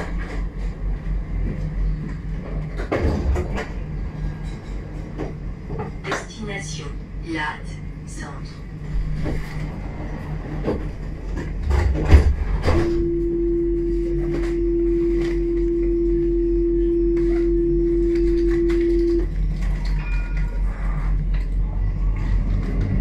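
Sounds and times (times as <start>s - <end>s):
tram running rumble: 0.0s - 23.0s
steady electronic tone: 12.4s - 21.8s.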